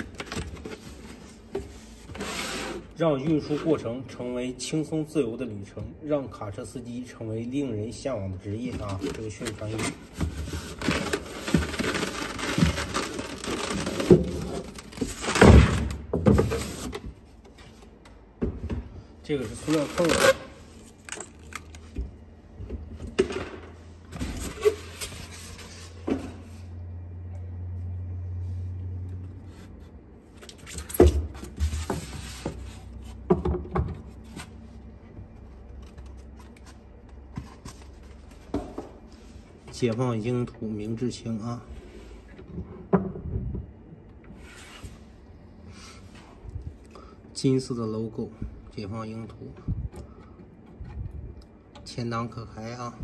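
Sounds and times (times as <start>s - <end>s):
rubbing of foam packaging: 8.8s - 15.8s, 19.4s - 21.0s.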